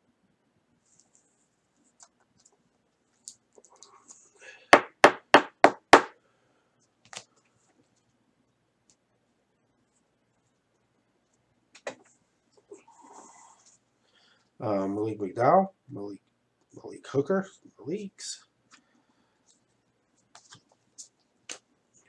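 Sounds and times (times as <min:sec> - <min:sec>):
sharp knocks on hard surface: 0:04.8 - 0:06.1.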